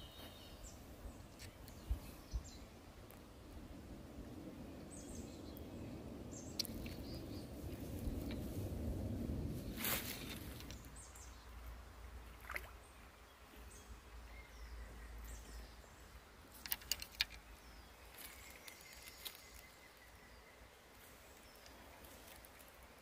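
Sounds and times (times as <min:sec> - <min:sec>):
faint waterside ambience: 0:00.0 - 0:23.0
sharp clicks and handling noises: 0:16.5 - 0:17.5.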